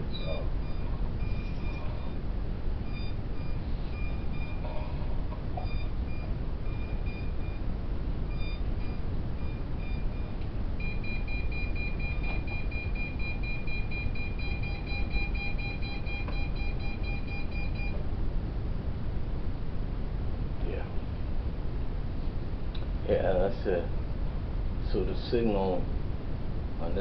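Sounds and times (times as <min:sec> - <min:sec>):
steady unbroken beep: 0:00.0 - 0:18.0.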